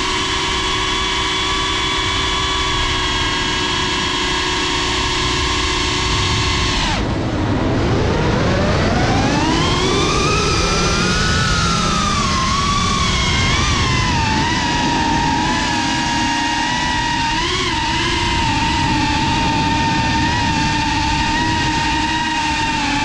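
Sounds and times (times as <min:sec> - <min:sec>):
drone motors whining: 0:00.0 - 0:23.0
rushing air: 0:05.9 - 0:23.0.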